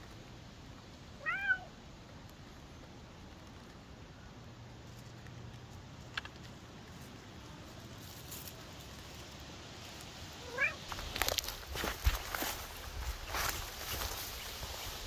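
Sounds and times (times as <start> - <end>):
rustling through undergrowth: 0.0 - 15.0
cat meowing: 1.2 - 1.7, 10.4 - 10.8.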